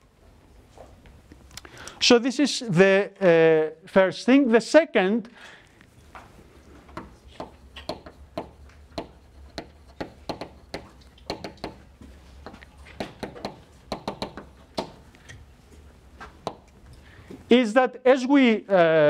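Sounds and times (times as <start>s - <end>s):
chalk writing on blackboard: 7.0s - 15.0s.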